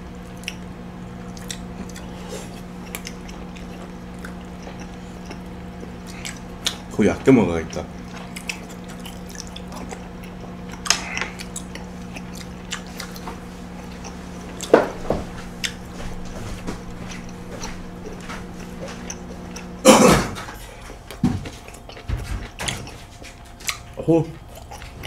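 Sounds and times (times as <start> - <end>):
low hum: 0.0 - 23.0
chewing: 0.2 - 19.8, 20.4 - 25.0.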